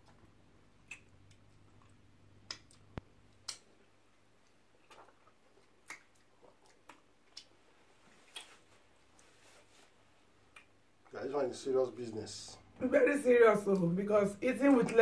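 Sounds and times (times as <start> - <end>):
wet mouth clicks and lip smacks: 0.8 - 3.8, 4.4 - 7.6, 8.2 - 8.6, 10.5 - 10.8.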